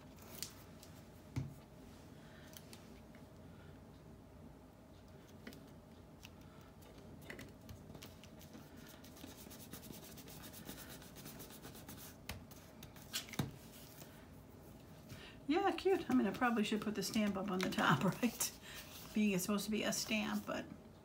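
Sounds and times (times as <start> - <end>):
fingertips rubbing paper: 8.4 - 12.2.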